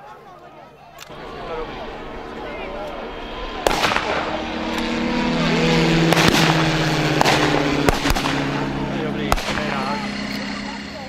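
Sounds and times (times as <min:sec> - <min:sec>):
engine running: 0:01.0 - 0:11.0
gunshots: 0:03.6 - 0:10.4.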